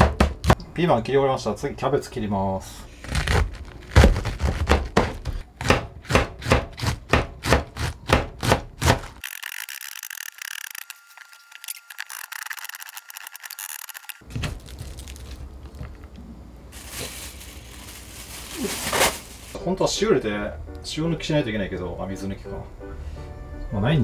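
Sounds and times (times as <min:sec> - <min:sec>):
knife chopping cabbage: 0:00.0 - 0:00.6, 0:03.0 - 0:09.2.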